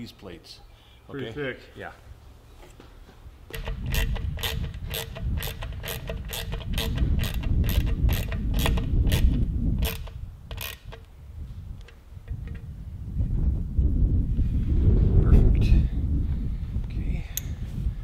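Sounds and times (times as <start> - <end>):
ratchet wrench clicking: 3.5 - 11.1.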